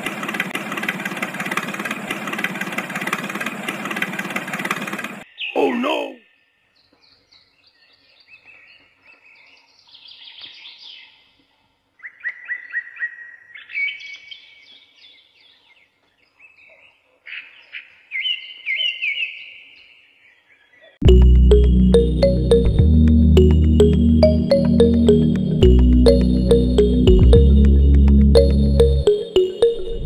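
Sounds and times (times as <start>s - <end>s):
small birds chirping: 5.2s - 11.4s.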